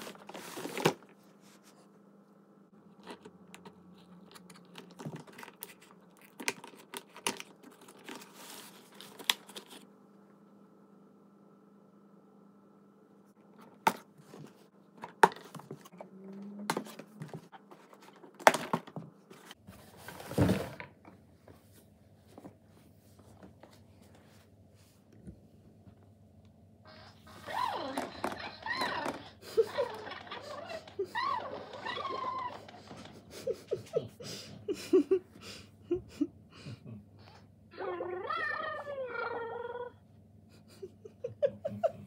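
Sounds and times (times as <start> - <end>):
cardboard rustling scrape: 0.0 - 1.7, 19.3 - 20.8.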